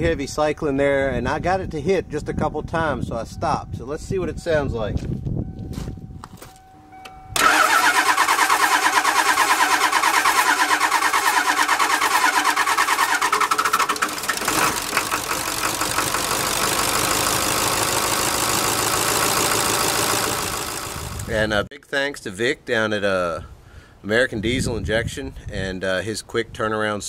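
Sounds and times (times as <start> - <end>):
diesel engine cranking and idling: 7.3 - 21.5.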